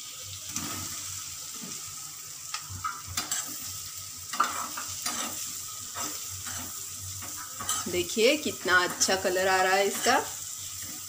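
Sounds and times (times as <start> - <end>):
cheese sizzling in butter: 0.0 - 11.0
spoon scraping and tapping a pan: 2.5 - 3.6, 4.3 - 8.0.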